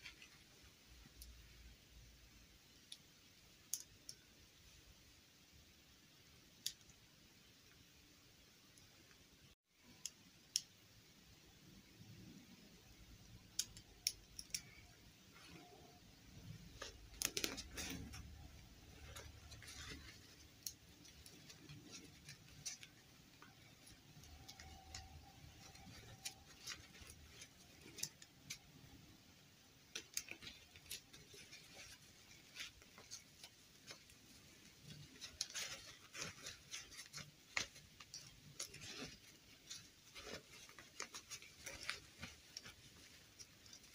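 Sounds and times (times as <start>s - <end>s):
hands handling plastic doll: 0.0s - 1.5s, 13.3s - 43.9s.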